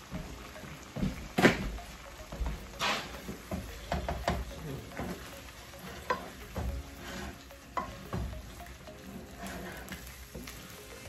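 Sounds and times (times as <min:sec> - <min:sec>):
sauce sizzling: 0:00.0 - 0:11.0
spatula knocking against pan: 0:03.2 - 0:05.2
spatula scraping a frying pan: 0:05.0 - 0:10.8.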